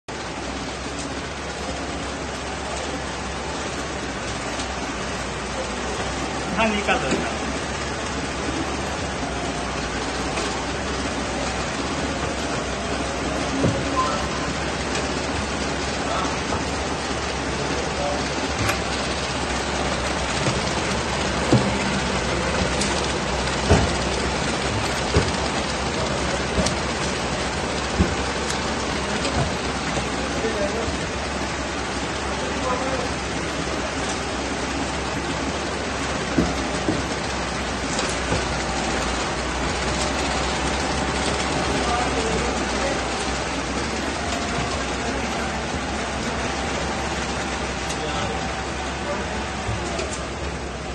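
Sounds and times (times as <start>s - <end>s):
banknote sorting machine whirring: 0.1s - 50.9s
low motor hum: 7.0s - 50.9s
sharp machine knock: 18.2s - 31.2s.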